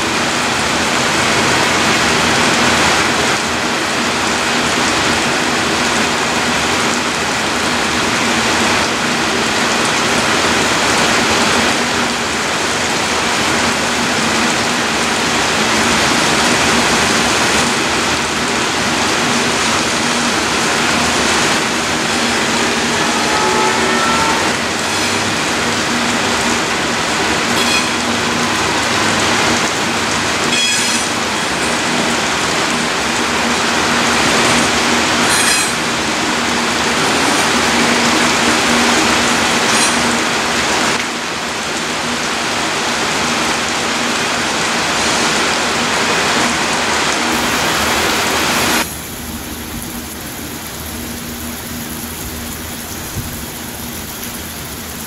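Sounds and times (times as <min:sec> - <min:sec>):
freight train wheels on rails: 0:00.0 - 0:55.0
wheel squeals: 0:21.1 - 0:25.8, 0:27.6 - 0:28.1, 0:30.5 - 0:32.0, 0:35.2 - 0:35.9, 0:36.7 - 0:40.2.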